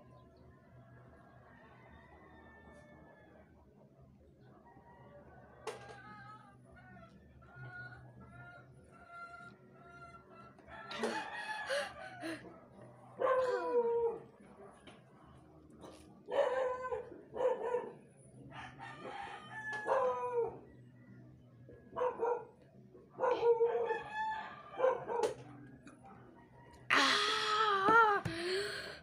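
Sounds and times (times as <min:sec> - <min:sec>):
roosters crowing: 0:05.6 - 0:12.4, 0:18.5 - 0:20.7, 0:23.3 - 0:25.3.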